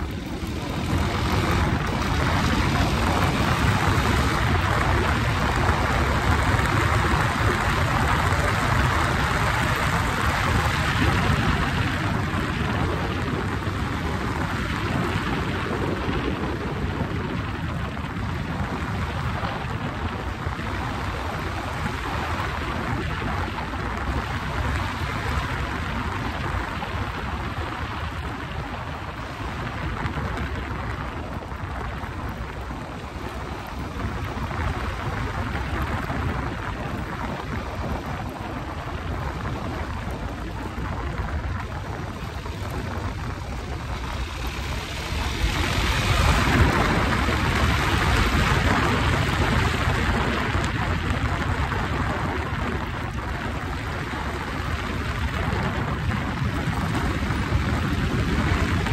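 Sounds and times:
motorcycle engine: 0.0s - 11.8s
wind rush on microphone: 0.0s - 58.9s.

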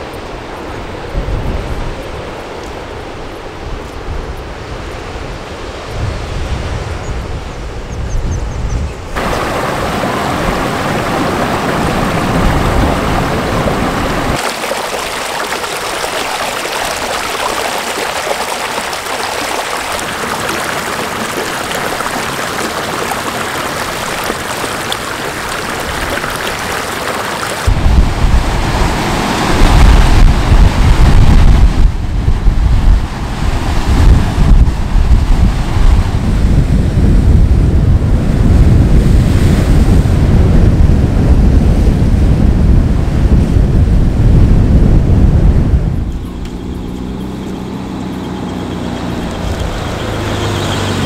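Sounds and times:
wind buffeting microphone: 0.0s - 51.0s
ocean surf washing onto beach: 9.2s - 44.3s.

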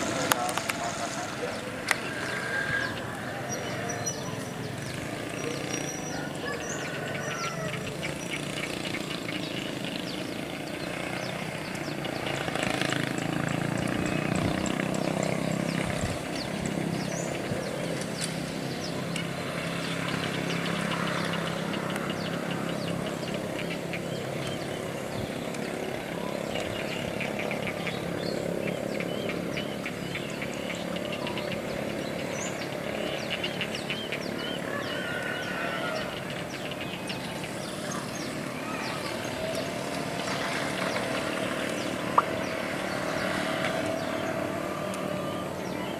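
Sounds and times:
birds chirping: 0.0s - 45.9s
distant locomotive engine hum: 0.0s - 45.9s.

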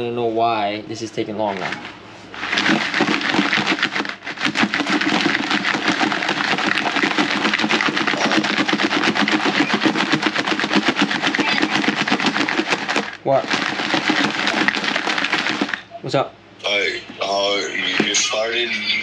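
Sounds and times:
crab shells rattling in container: 2.4s - 15.9s.

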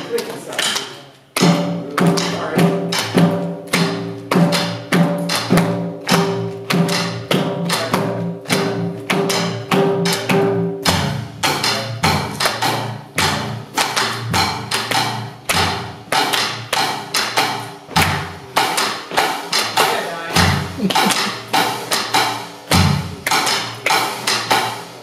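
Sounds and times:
cymbal and drum strokes: 1.4s - 25.0s
heavy low drum hits: 19.7s - 23.8s.

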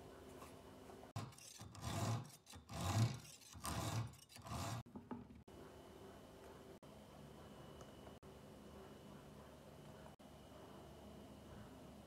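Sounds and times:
scraping on steel shaft: 1.1s - 4.9s.

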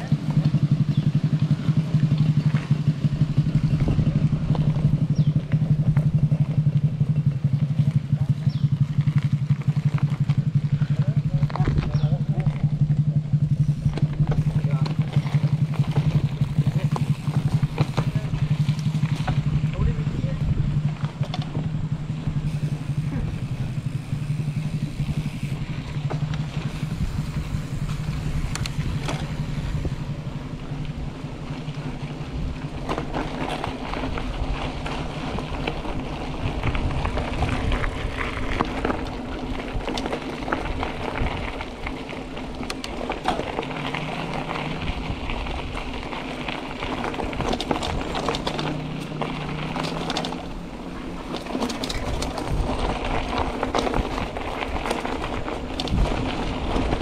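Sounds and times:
bike tyres rumbling: 0.0s - 57.0s
steady low hum: 0.0s - 57.0s
wind on microphone: 3.2s - 6.4s, 19.2s - 25.7s, 26.4s - 31.2s, 33.8s - 42.4s.

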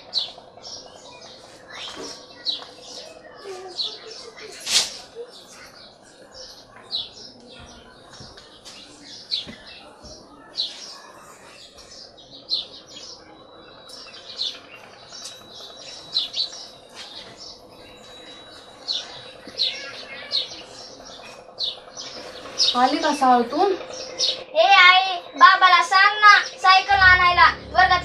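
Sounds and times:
small birds chirping: 0.0s - 28.0s
low steady hum: 27.0s - 28.0s.

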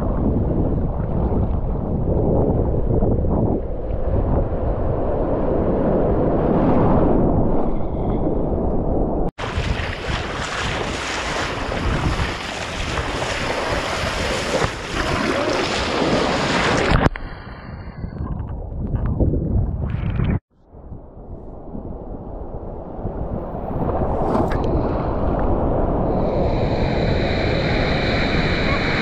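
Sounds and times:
wind buffeting microphone: 0.0s - 29.0s
surf splashing: 9.4s - 17.1s.

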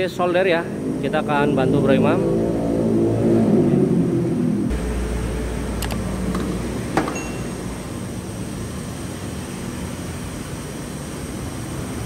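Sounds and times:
machinery hum and hiss: 4.7s - 12.0s.

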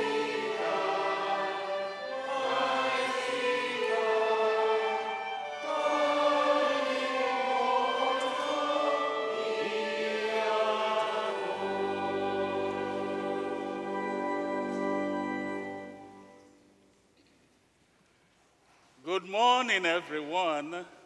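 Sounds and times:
choir singing a hymn: 0.0s - 16.5s.

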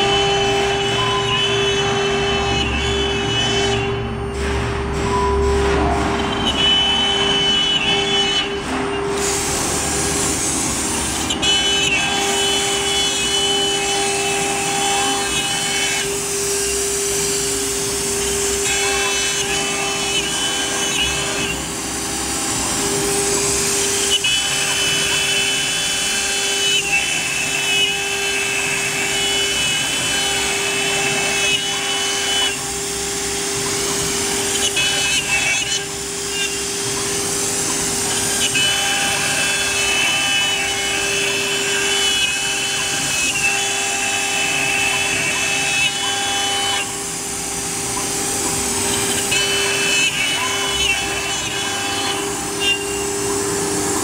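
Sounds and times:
router spindle whine: 0.0s - 4.4s, 5.0s - 54.0s
hiss of cutting: 9.2s - 11.4s.

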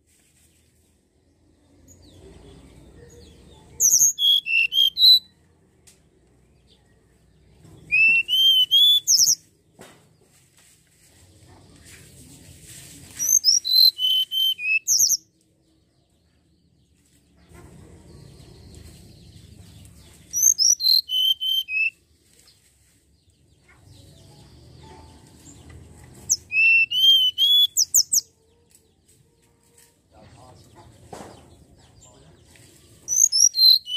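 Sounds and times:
bird whistling song: 3.8s - 5.3s, 7.9s - 9.4s, 13.2s - 15.2s, 20.3s - 22.0s, 26.2s - 28.3s, 33.1s - 33.9s.

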